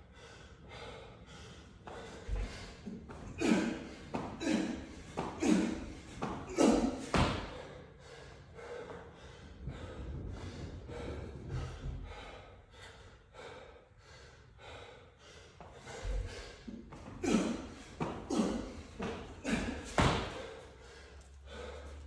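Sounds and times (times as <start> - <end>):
person breathing hard: 0.0 - 22.0
heavy thud on floor: 19.9 - 20.4.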